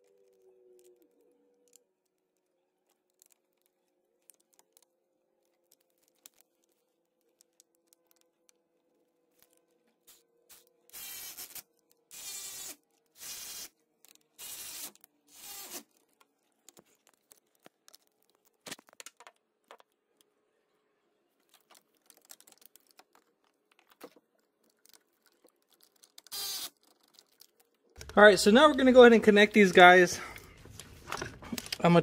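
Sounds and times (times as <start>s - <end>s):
cordless power driver spinning: 10.5s - 13.7s, 14.4s - 16.0s, 26.2s - 26.8s
tools clicking and rattling: 21.5s - 28.2s.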